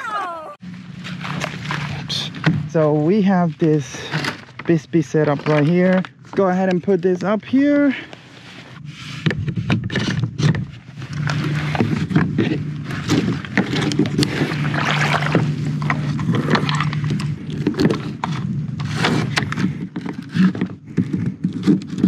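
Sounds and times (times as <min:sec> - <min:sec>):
steady low hum: 0:00.0 - 0:22.0
scrapes and knocks on paddle board: 0:03.6 - 0:22.0
sloshing water: 0:13.2 - 0:18.2.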